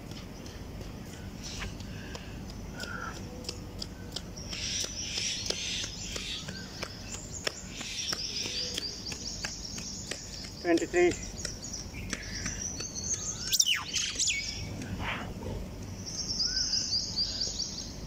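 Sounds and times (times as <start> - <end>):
steady low rumble: 11.2 - 18.0
bird call: 11.5 - 14.6.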